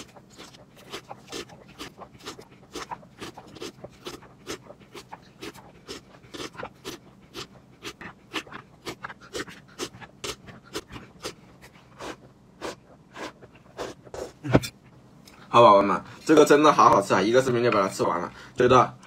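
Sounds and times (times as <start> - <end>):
person slurping milk: 0.0 - 14.5.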